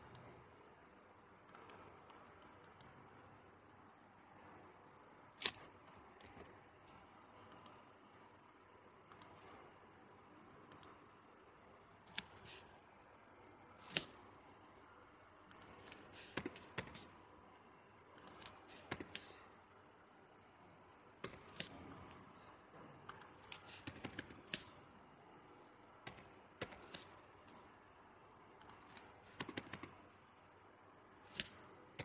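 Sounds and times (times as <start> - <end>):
mouse clicks: 5.4 - 7.8, 9.1 - 9.4, 10.7 - 11.0, 12.1 - 12.7, 13.8 - 14.2, 15.5 - 17.1, 18.2 - 19.4, 21.2 - 22.2, 23.1 - 24.8, 26.0 - 27.2, 28.6 - 30.1, 31.2 - 31.6
keyboard keystrokes: 15.5 - 17.1, 21.2 - 21.9, 23.1 - 24.8, 26.0 - 27.2, 28.6 - 30.0.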